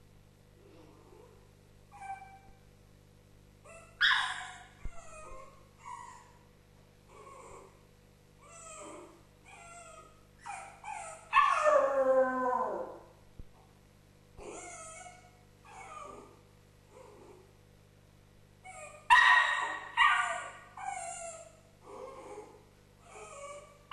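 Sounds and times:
dog whimpering and yipping: 0:01.9 - 0:02.5, 0:03.7 - 0:06.4, 0:08.4 - 0:13.0, 0:14.4 - 0:17.3, 0:18.7 - 0:23.9
dog howling: 0:10.9 - 0:13.1.

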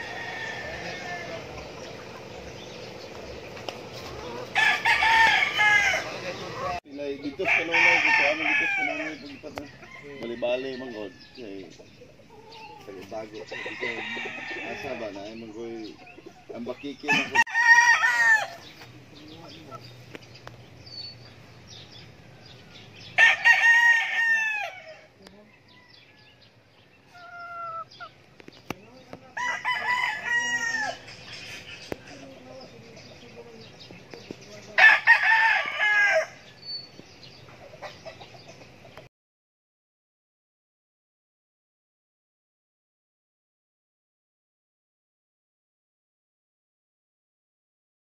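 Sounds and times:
roosters crowing: 0:00.0 - 0:20.0, 0:21.0 - 0:39.0.

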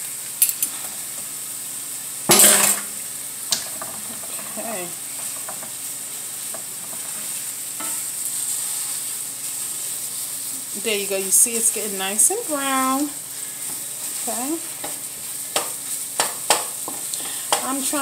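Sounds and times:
sausage sizzling in frying pan: 0:00.0 - 0:18.0
wooden spatula scraping pan: 0:06.6 - 0:09.8.

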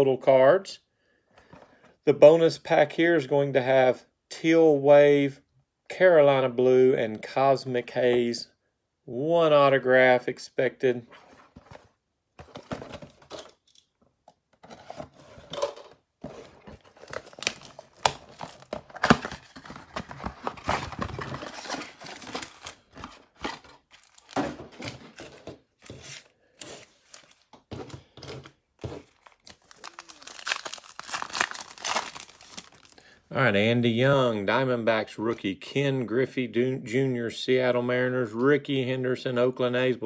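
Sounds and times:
plastic wrap crinkling and tearing: 0:16.8 - 0:25.0, 0:29.0 - 0:33.1.

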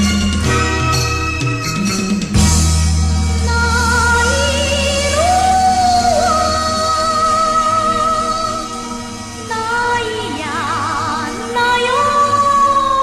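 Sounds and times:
instrumental backing: 0:00.0 - 0:11.7
woman singing with vibrato: 0:03.4 - 0:13.0.

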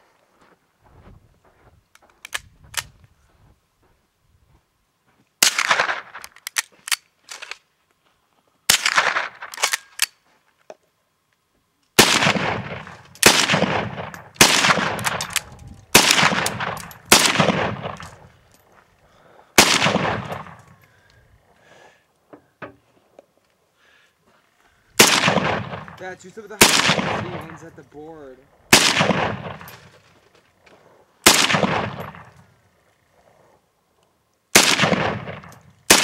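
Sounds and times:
rifle shots echoing: 0:05.4 - 0:06.3, 0:08.7 - 0:10.0, 0:12.0 - 0:18.4, 0:19.6 - 0:20.8, 0:25.0 - 0:30.0, 0:31.2 - 0:32.4, 0:34.5 - 0:36.0.

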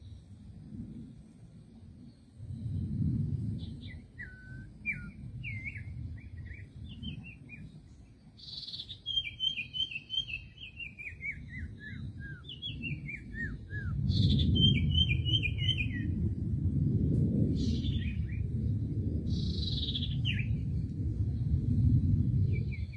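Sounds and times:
low rumble: 0:00.0 - 0:08.8, 0:11.2 - 0:22.9
bird whistled calls: 0:03.8 - 0:07.6, 0:08.4 - 0:16.1.

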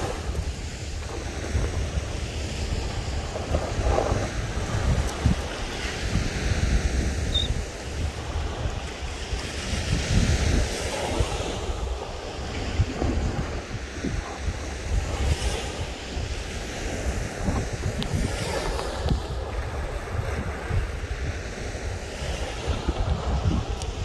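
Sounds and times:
small waves washing onto beach: 0:00.0 - 0:24.0
wind gusting over microphone: 0:00.0 - 0:24.0.

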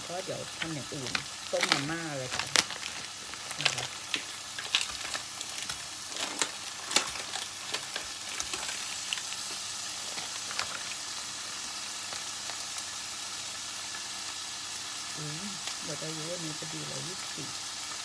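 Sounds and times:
meat sizzling in a pan: 0:00.0 - 0:18.0
sharp clicks and crackles: 0:00.5 - 0:11.0.

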